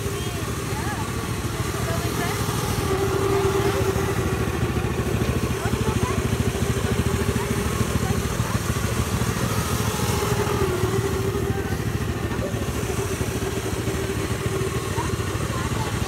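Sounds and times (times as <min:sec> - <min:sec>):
snowmobile engine idling: 0:00.0 - 0:16.0.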